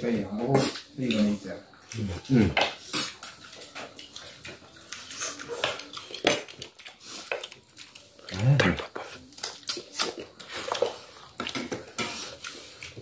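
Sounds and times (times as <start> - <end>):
cutlery clinking on plates: 2.6 - 7.6, 9.0 - 13.0.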